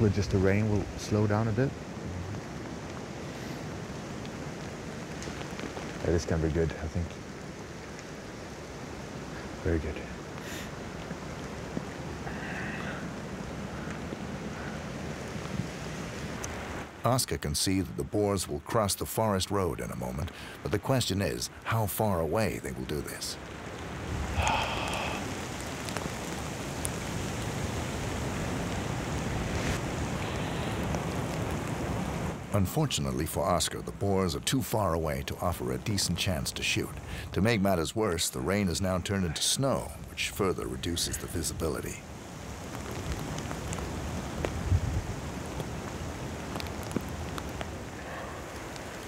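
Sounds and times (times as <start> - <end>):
rain: 0.0 - 49.0
wind: 0.0 - 49.0
wind buffeting microphone: 42.2 - 49.0.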